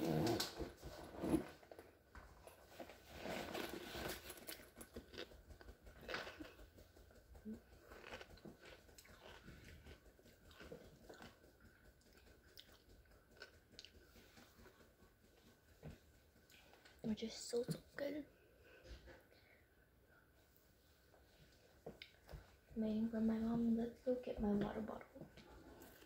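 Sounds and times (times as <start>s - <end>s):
crunching and chewing chips: 3.2s - 6.6s, 7.6s - 11.4s, 12.1s - 14.0s.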